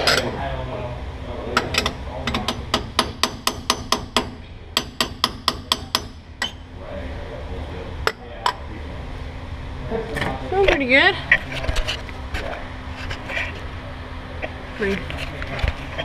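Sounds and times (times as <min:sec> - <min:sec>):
hammer tapping metal tool: 0:01.6 - 0:06.6.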